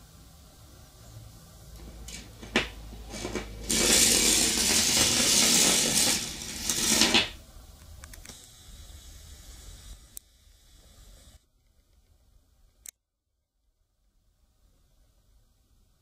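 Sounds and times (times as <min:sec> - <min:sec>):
rasping through copper coil: 0:01.8 - 0:07.4
battery click into coil: 0:08.0 - 0:08.6.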